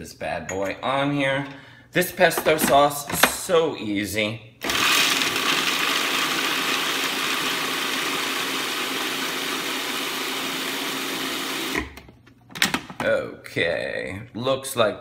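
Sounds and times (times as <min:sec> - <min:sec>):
food processor motor running: 0:04.6 - 0:11.9.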